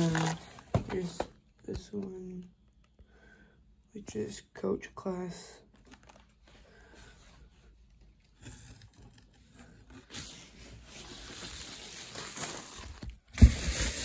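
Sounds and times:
bubble wrap and cardboard rustling: 0.0s - 1.3s, 7.4s - 14.0s.

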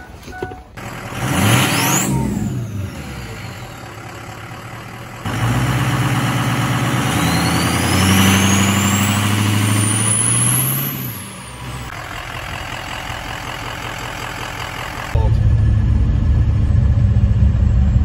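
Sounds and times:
pickup truck engine running: 2.2s - 7.2s, 11.5s - 18.0s.

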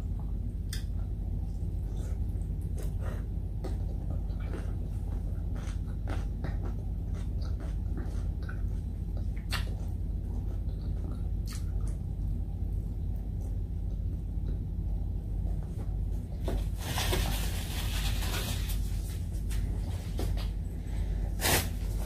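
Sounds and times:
steady low hum: 0.0s - 22.0s
food being chewed: 0.2s - 14.7s
plastic rustle: 16.5s - 20.3s.

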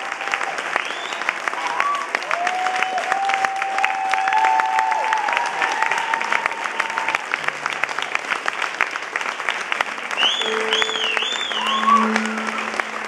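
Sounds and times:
audience applauding: 0.0s - 13.0s
long cheers: 1.5s - 7.3s.

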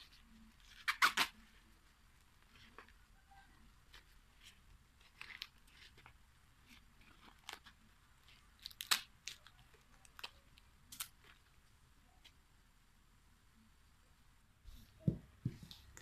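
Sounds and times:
corn husks being stripped: 8.3s - 11.4s.

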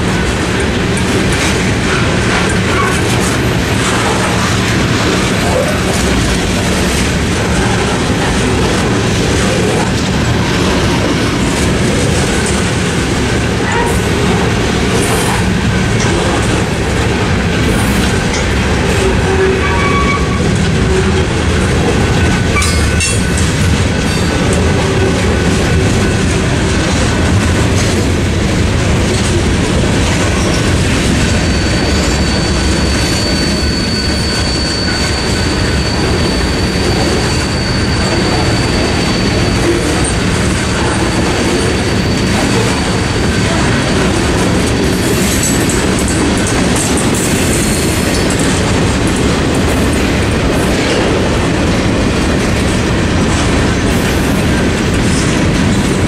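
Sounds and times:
freight train wheels on rails: 0.0s - 56.0s
high-pitched wheel squeal: 19.0s - 21.2s, 31.3s - 43.9s.

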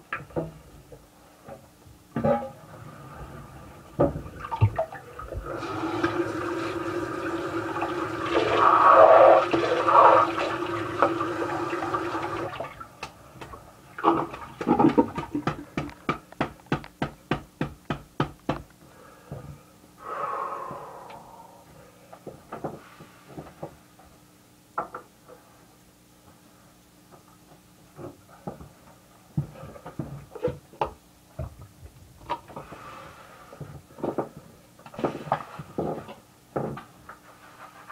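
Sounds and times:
water running: 4.3s - 12.9s.

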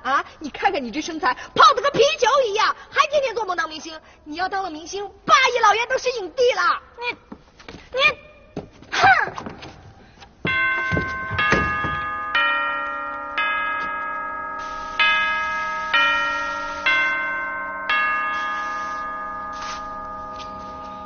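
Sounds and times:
bell chimes playing a melody: 10.5s - 21.0s.

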